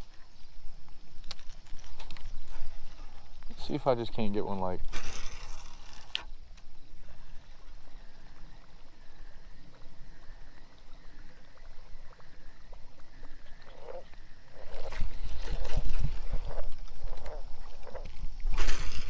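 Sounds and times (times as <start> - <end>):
fishing reel whirring: 4.9 - 6.3
wind rumble on microphone: 6.4 - 19.0.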